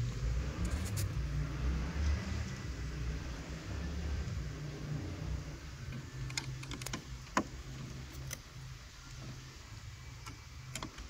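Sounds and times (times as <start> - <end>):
low steady hum: 0.0 - 11.0.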